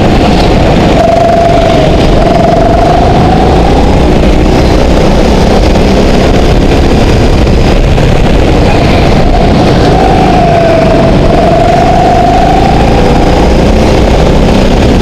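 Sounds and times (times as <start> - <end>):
go-kart engine running: 0.0 - 15.0.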